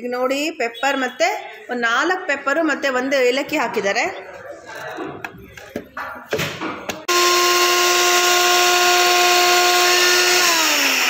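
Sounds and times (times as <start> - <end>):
blender motor grinding: 7.1 - 11.0.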